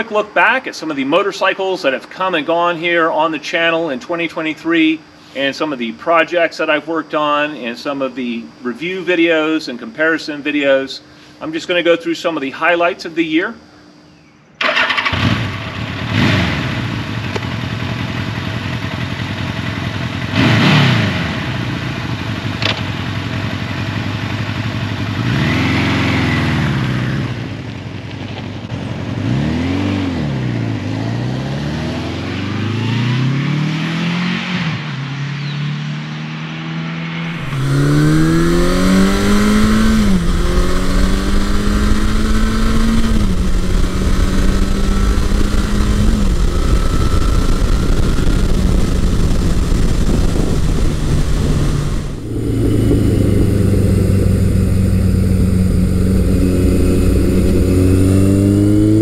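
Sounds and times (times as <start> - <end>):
motorcycle engine revving: 14.6 - 59.0.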